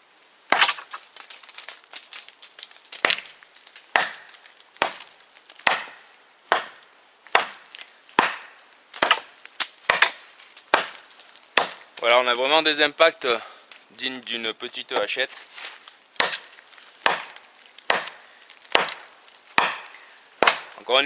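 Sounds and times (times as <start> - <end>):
knife chopping into dry tree: 0.5 - 1.0, 3.0 - 3.3, 3.9 - 11.0, 11.6 - 11.9, 15.0 - 20.8.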